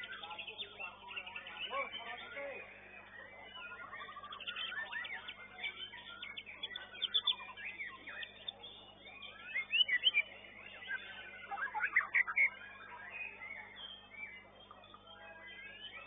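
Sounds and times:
songbird singing: 0.0 - 16.0.

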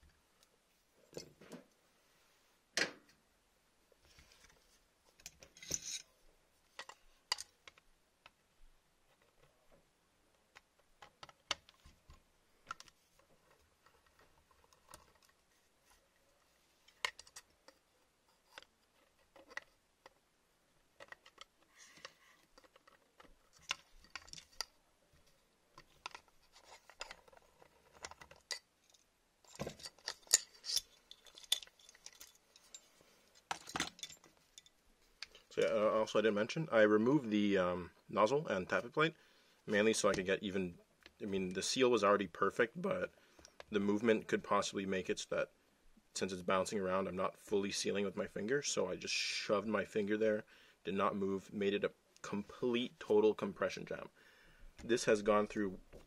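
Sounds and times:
plastic and metal parts clicking: 10.5 - 15.4, 21.0 - 24.8, 25.7 - 32.8.

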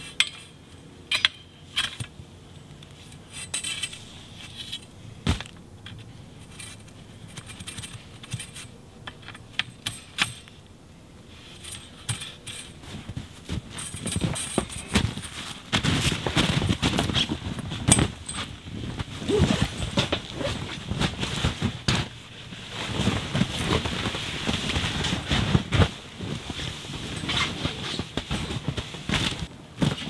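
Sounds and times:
metal tent pole clinking: 0.0 - 2.2, 3.1 - 10.6, 11.5 - 12.9, 13.6 - 18.6.

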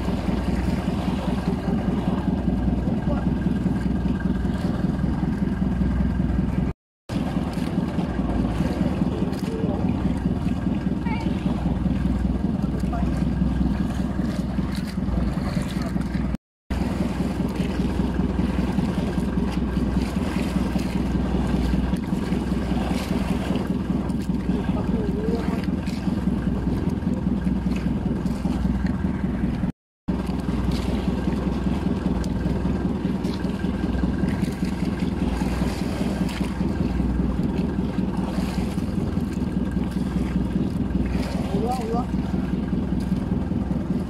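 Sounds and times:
boat engine humming: 0.0 - 44.0.

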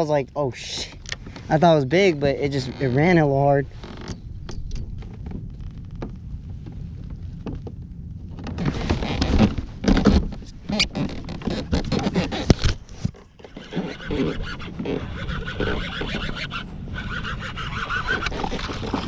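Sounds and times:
wind on microphone: 0.0 - 19.0
camera handling rustling: 12.3 - 13.4.

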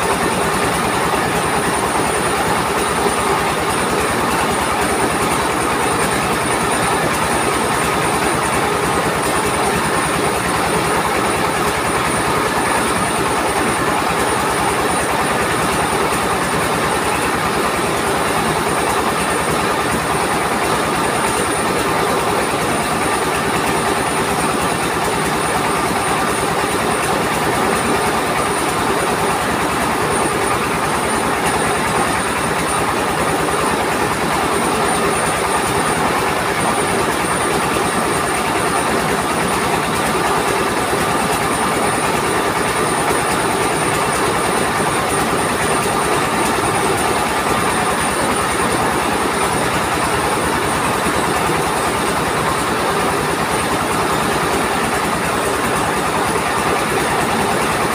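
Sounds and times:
rice huller rattling: 0.0 - 57.9.

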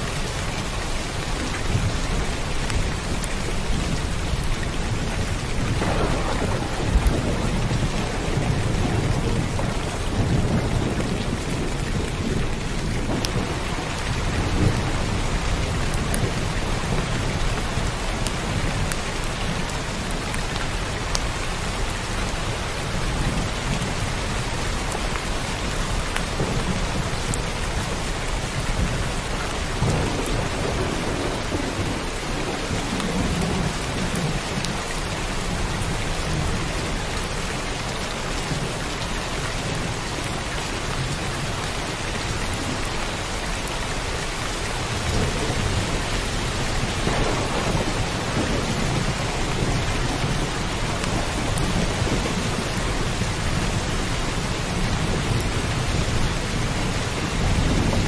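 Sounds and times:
heavy rain: 0.0 - 58.0
thunder rumbling: 1.7 - 20.2, 25.9 - 37.0, 44.8 - 58.0.

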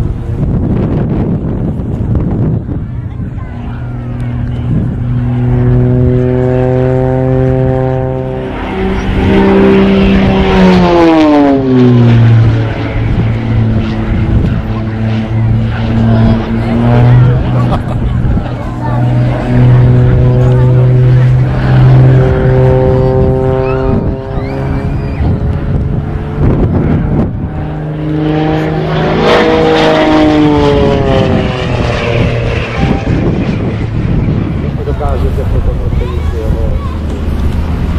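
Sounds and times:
propeller aircraft flying past: 0.0 - 37.9.

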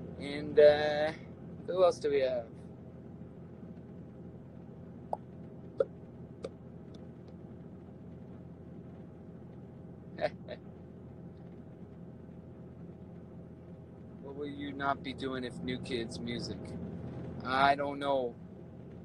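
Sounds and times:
low room hum: 0.0 - 19.0
man chuckling: 10.2 - 10.6.

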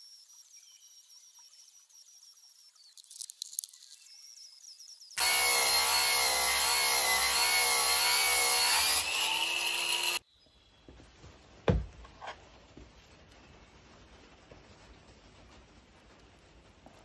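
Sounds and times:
angle grinder whine: 5.2 - 10.2.

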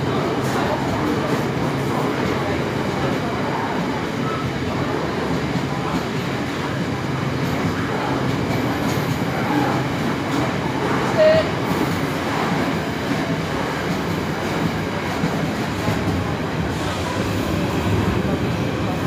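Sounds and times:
train wheels rumbling on rails: 0.0 - 19.0.

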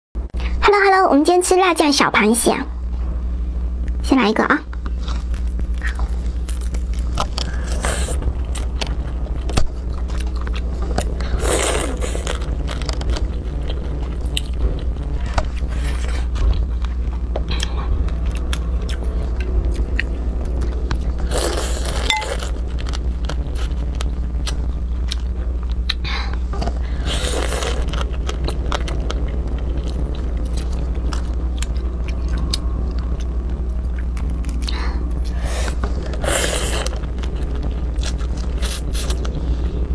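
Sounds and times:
low hum: 0.2 - 39.9
crab shells crunching: 27.0 - 33.3.

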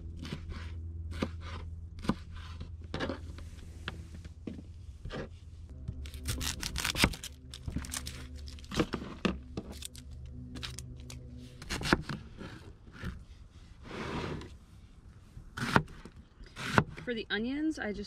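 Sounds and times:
soft background music: 5.6 - 13.5
onion skin peeling and crackling: 6.0 - 8.9.

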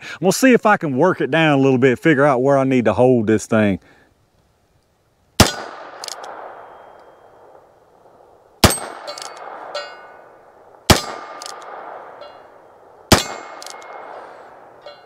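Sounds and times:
gunshot echoes: 5.4 - 7.5, 8.6 - 10.2, 10.9 - 12.2, 13.1 - 14.8.

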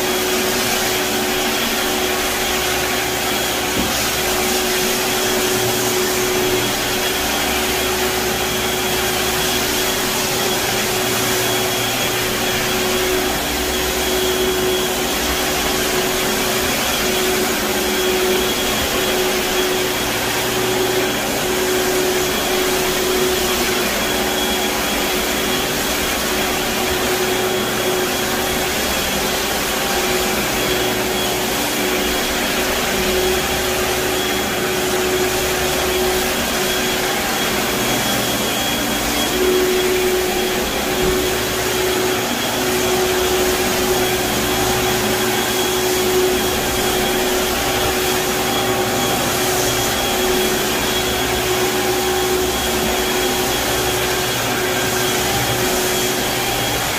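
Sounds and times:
floor scrubber drone: 0.0 - 56.9.

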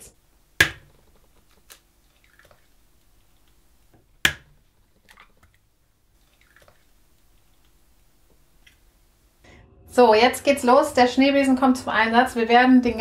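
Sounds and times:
egg cracking on plastic bowl: 0.6 - 8.9.

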